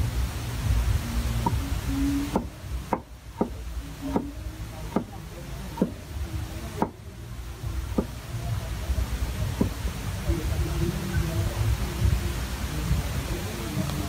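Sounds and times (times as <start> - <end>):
cleaver chopping on wooden board: 2.2 - 6.0, 6.7 - 7.0, 7.9 - 8.2.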